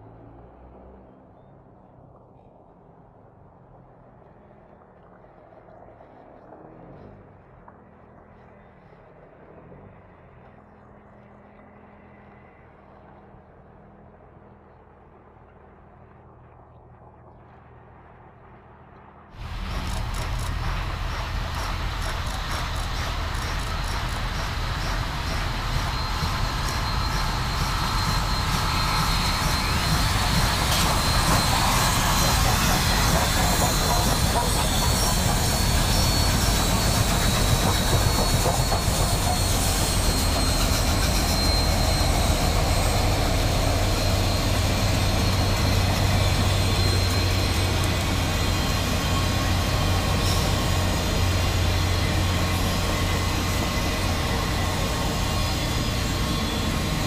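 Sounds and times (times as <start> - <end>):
diesel locomotive drone: 0.0 - 57.0
passenger cars rolling on rails: 19.0 - 57.0.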